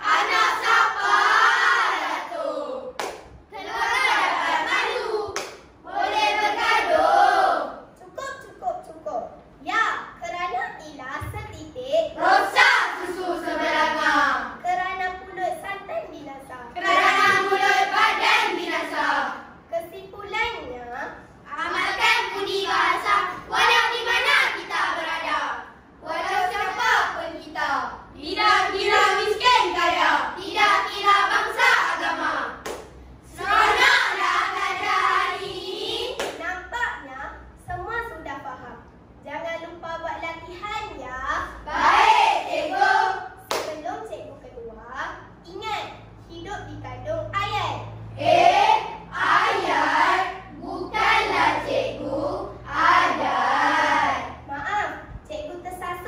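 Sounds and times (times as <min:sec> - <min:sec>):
children chanting in unison: 0:00.0 - 0:03.0, 0:03.6 - 0:07.9, 0:12.2 - 0:14.6, 0:16.8 - 0:19.5, 0:21.6 - 0:32.6, 0:33.3 - 0:36.2, 0:41.6 - 0:43.4, 0:48.0 - 0:54.5.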